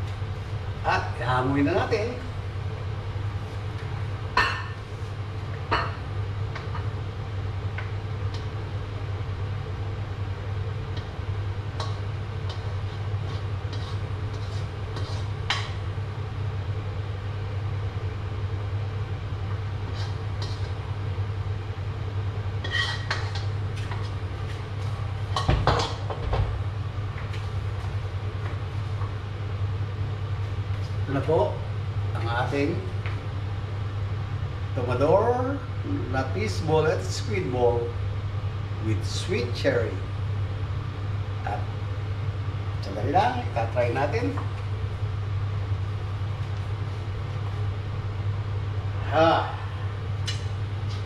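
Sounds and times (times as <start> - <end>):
steady low hum: 0.0 - 51.0
metal spatula scraping a wok: 13.2 - 15.6, 22.6 - 23.5.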